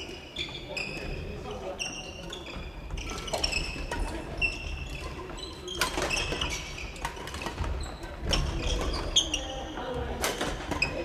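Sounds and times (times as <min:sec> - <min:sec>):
sneakers squeaking: 0:00.0 - 0:11.0.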